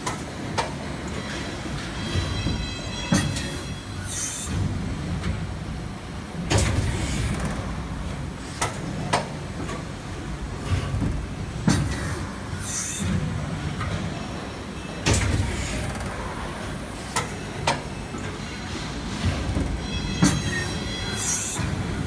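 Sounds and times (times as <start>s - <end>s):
mechanical clunks: 0.0s - 3.7s, 13.0s - 16.2s.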